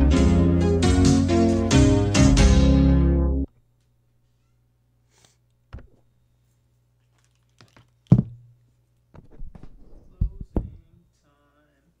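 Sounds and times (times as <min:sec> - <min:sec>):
low electrical hum: 0:03.4 - 0:12.0.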